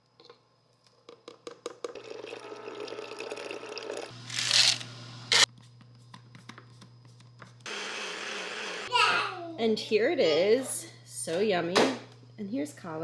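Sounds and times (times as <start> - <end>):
water pouring: 2.0 - 4.1.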